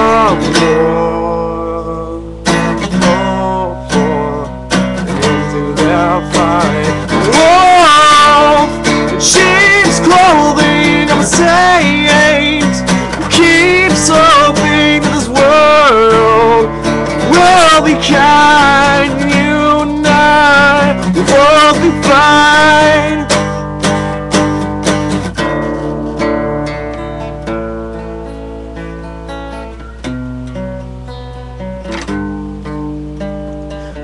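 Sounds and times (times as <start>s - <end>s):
young man singing loudly: 0.0s - 23.5s
acoustic guitar strumming: 0.0s - 34.0s.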